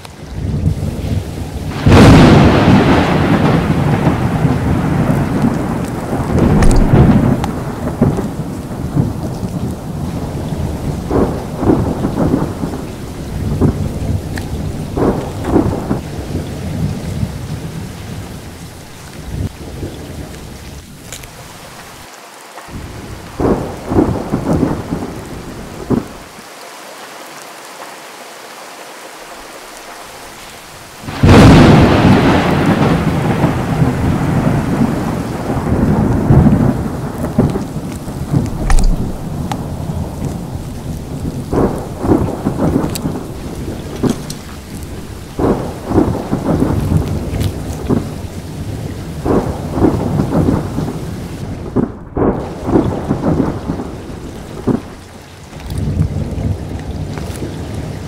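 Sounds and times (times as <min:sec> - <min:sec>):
steady rain: 0:00.0 - 0:58.0
thunder rumbling: 0:00.1 - 0:22.1, 0:22.7 - 0:26.4, 0:29.4 - 0:58.0
loud thunderclap: 0:00.3 - 0:18.4, 0:22.7 - 0:26.4, 0:31.0 - 0:55.0.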